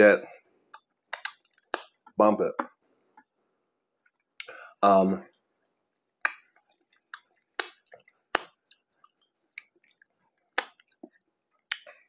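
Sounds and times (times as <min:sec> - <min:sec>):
mouth chewing: 0:00.6 - 0:02.2, 0:06.2 - 0:12.0
wet smacks and clicks: 0:00.6 - 0:02.2, 0:04.0 - 0:04.6, 0:05.3 - 0:12.0.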